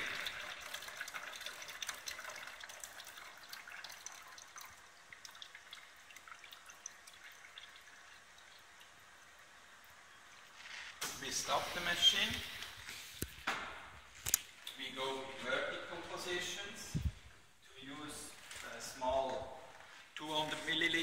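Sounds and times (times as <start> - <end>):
liquid trickling into a beaker: 0.0 - 13.4.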